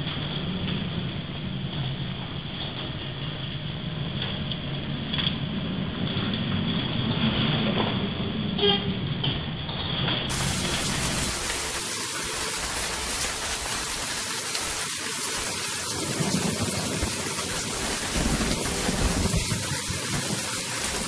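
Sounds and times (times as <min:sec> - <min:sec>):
wind and rain hiss: 0:10.3 - 0:21.0.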